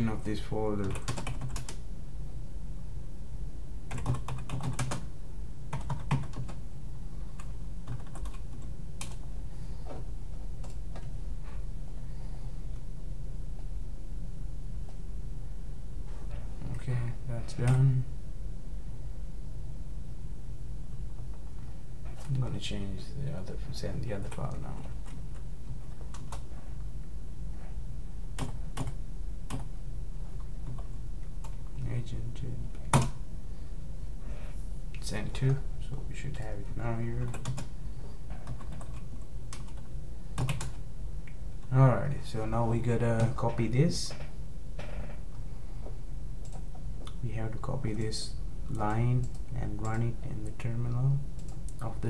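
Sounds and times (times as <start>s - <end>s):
steady low hum: 0.0s - 52.0s
computer keyboard typing: 0.8s - 1.8s, 3.9s - 5.0s, 5.7s - 6.6s, 7.4s - 9.2s, 26.0s - 26.5s, 28.4s - 29.7s, 37.2s - 37.7s, 38.4s - 40.8s.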